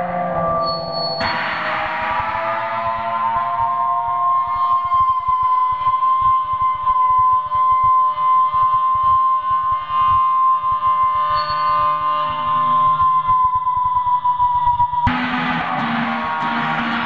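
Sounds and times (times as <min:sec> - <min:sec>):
electric guitar with effects: 0:00.0 - 0:17.0.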